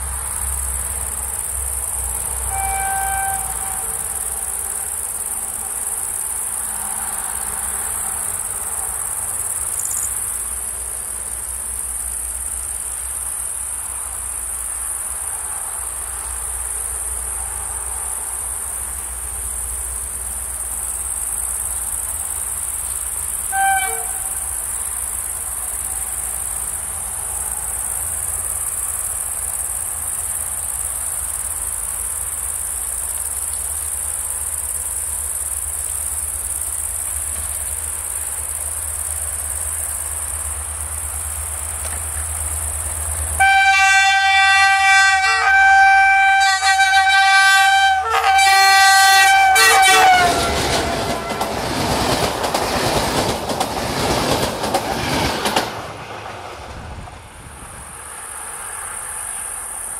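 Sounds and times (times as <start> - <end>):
crickets chirping: 0.0 - 59.9
locomotive rumble: 0.0 - 59.9
locomotive horn: 2.4 - 4.8, 23.4 - 24.6, 43.4 - 51.9.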